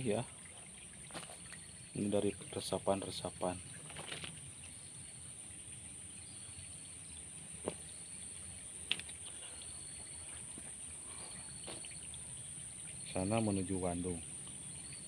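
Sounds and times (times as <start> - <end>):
high-pitched insect drone: 0.0 - 15.0
faint chirps: 4.5 - 15.0.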